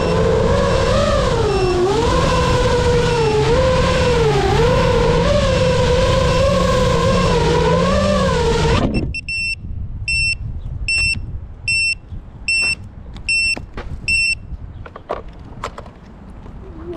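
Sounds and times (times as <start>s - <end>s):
quadcopter motors whining: 0.0s - 9.3s
short high electronic beeps: 9.0s - 14.5s.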